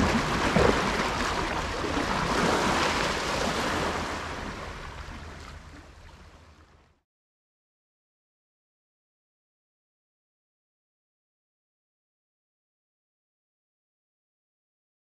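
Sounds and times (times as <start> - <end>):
sea surf against rocks: 0.0 - 6.3.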